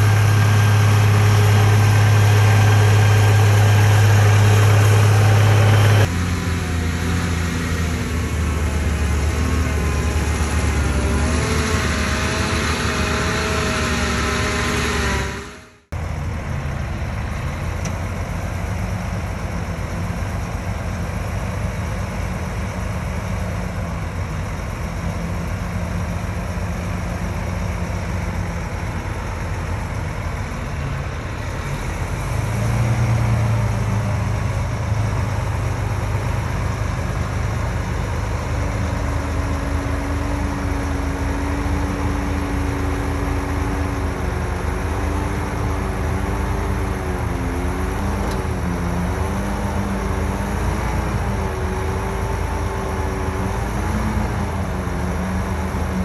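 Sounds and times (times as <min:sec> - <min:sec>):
heavy diesel engines running: 0:00.0 - 0:56.0
steady high whine: 0:08.0 - 0:17.2.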